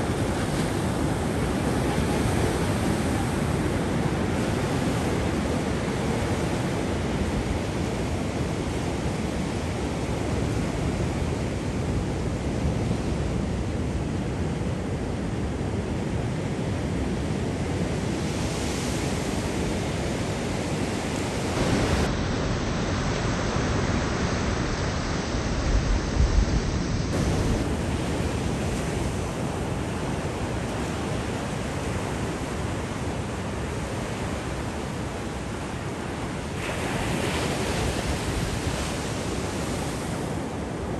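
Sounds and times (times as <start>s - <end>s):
surf breaking on beach: 21.1s - 33.0s, 35.3s - 40.7s
wind thumps on microphone: 21.5s - 27.8s.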